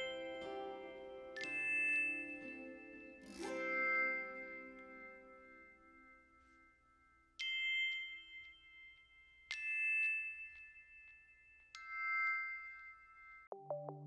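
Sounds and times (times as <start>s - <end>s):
slow bell-like struck notes: 0.0s - 10.5s.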